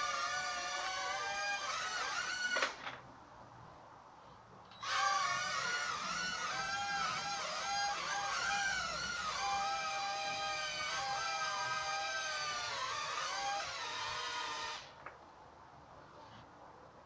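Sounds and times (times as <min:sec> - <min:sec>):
toy quadcopter motors whining: 0:00.0 - 0:02.8, 0:04.8 - 0:14.9.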